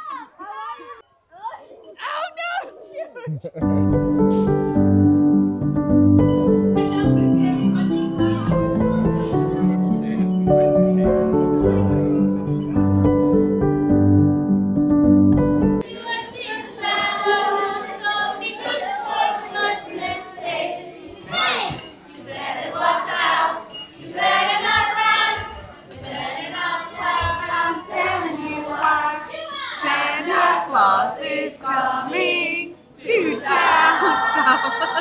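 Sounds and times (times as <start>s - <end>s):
sleigh bells jingling: 6.3s - 11.9s, 15.9s - 17.9s, 21.1s - 29.1s
choir singing: 15.8s - 35.0s.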